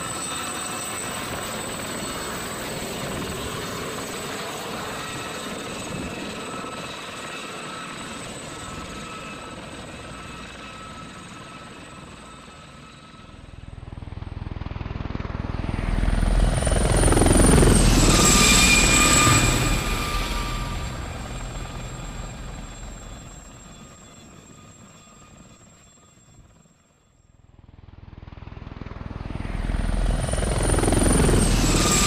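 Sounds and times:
helicopter rotor beating: 0.0 - 26.7, 27.5 - 32.0
helicopter turbine whine: 0.0 - 32.0.

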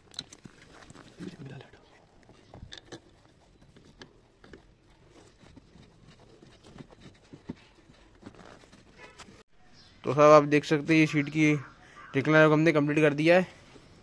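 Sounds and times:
soft rustling of padding: 0.0 - 9.4.

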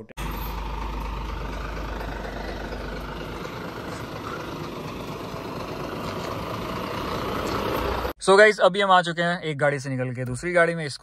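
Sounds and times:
lorry diesel engine rumbling: 0.0 - 8.2.

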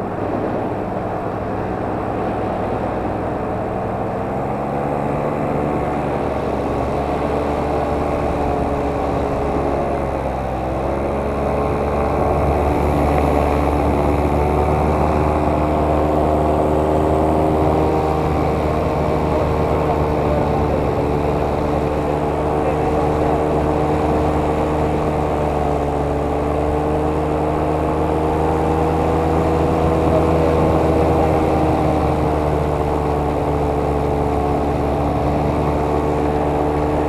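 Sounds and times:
motor running with pitched hum: 0.0 - 37.0.

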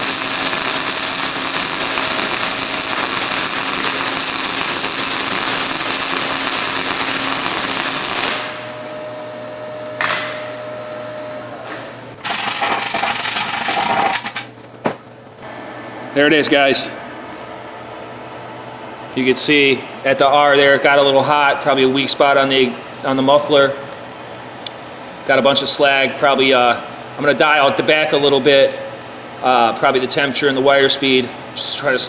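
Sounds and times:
welding arc crackling: 0.0 - 11.5, 12.1 - 15.6.

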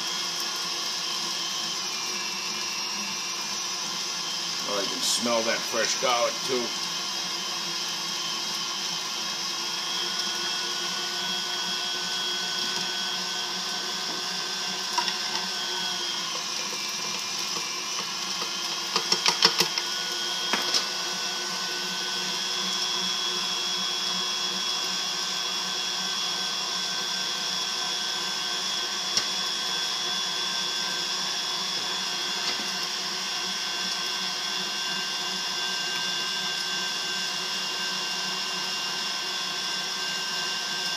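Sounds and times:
meat grinder motor whining: 0.0 - 40.9.

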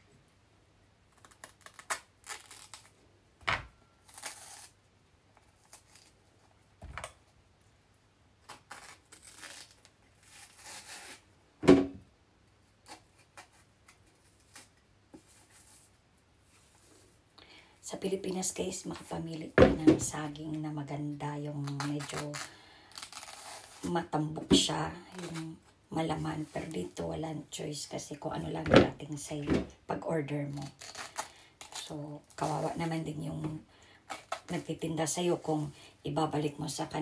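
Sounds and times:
banana skin tearing and rustling: 1.1 - 3.0, 3.8 - 7.2, 8.4 - 11.3, 12.8 - 14.8, 21.6 - 23.9, 30.5 - 32.8, 34.0 - 34.7.

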